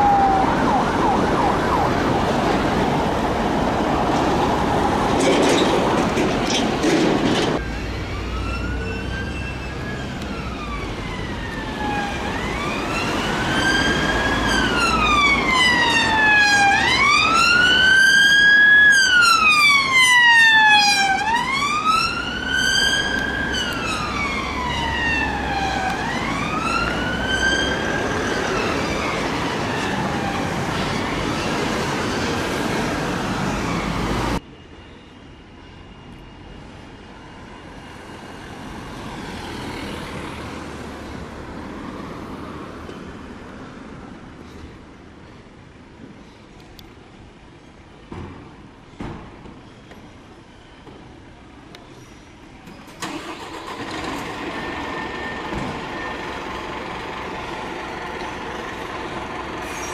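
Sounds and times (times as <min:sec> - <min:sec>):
police siren wailing: 0:00.0 - 0:03.0, 0:07.6 - 0:31.9
low traffic rumble: 0:51.3 - 0:59.9.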